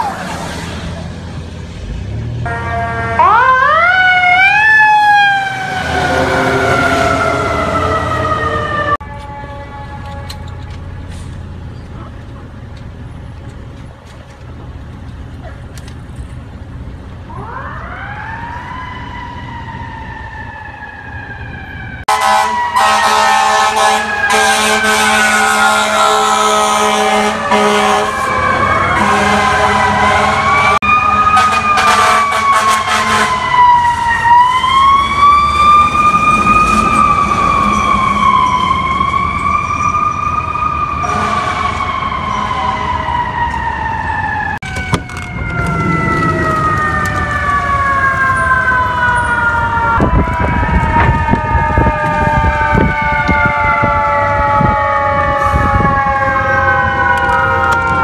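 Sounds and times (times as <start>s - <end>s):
fire engine siren wailing: 0.0s - 58.0s
street traffic: 0.0s - 58.0s
truck engine: 0.0s - 58.0s
second siren: 2.5s - 11.3s, 17.3s - 58.0s.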